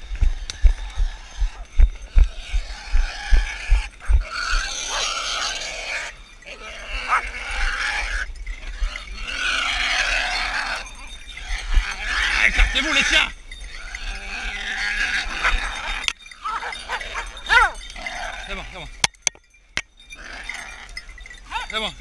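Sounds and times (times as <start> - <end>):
running footsteps on woodland floor: 0.0 - 4.6
wild boar squealing and grunting: 0.2 - 19.0, 20.1 - 21.8.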